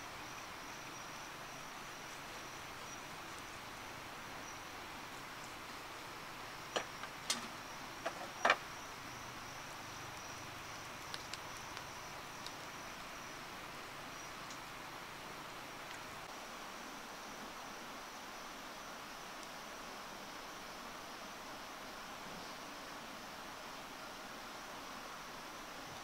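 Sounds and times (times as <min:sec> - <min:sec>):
background hiss: 0:00.0 - 0:26.0
high insect trill: 0:00.0 - 0:26.0
sharp clicks and knocks: 0:06.7 - 0:08.6.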